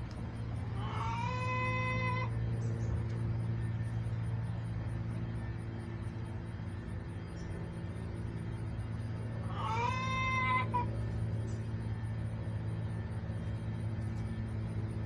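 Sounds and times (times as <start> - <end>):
steady low hum: 0.0 - 15.0
chicken call: 0.8 - 2.4, 9.5 - 10.9.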